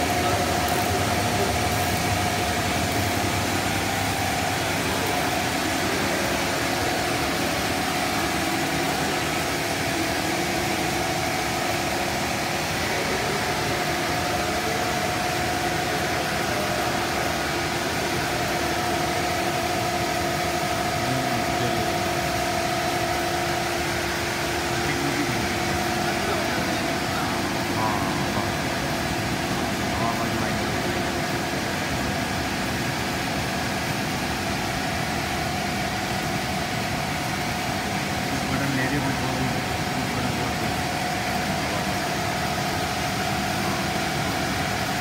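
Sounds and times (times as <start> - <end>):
machine hum and hiss: 0.0 - 45.0.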